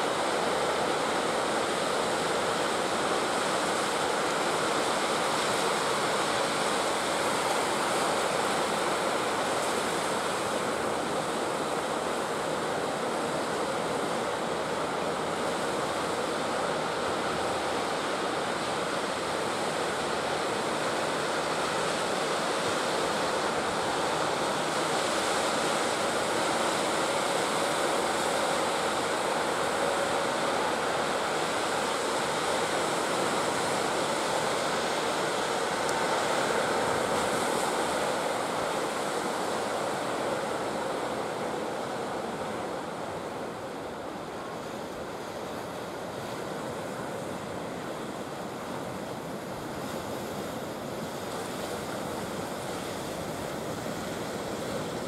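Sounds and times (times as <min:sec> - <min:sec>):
ocean surf breaking: 0:13.2 - 0:55.0.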